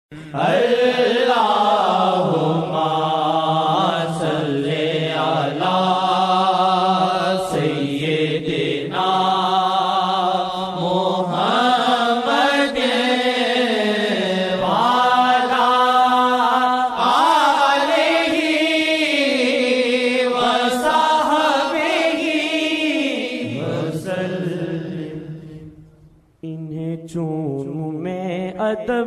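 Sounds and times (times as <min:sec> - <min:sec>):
person singing devotional song: 0:00.1 - 0:29.0.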